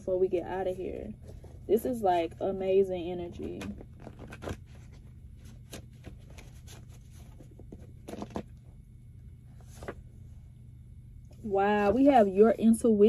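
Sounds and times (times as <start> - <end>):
faint low hum: 0.0 - 13.0
cards shuffling: 3.3 - 8.6.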